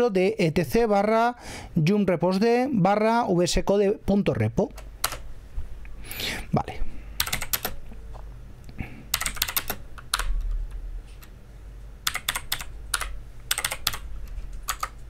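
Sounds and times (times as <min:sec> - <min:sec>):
typing on computer keyboard: 0:05.0 - 0:05.2, 0:07.2 - 0:07.8, 0:09.1 - 0:10.5, 0:12.0 - 0:14.0, 0:14.6 - 0:15.0.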